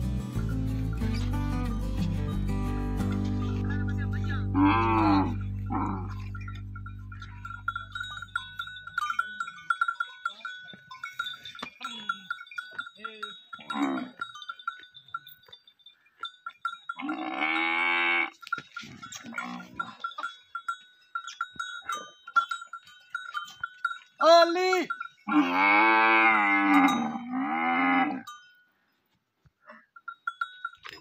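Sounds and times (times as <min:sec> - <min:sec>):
camel groaning calls: 0:03.4 - 0:08.2, 0:13.6 - 0:14.3, 0:17.0 - 0:20.2, 0:25.3 - 0:28.3.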